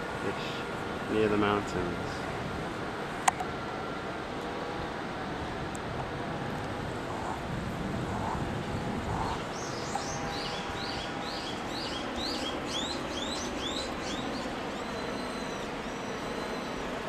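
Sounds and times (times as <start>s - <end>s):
steady background hiss: 0.0s - 17.0s
bird chirping: 9.2s - 16.9s.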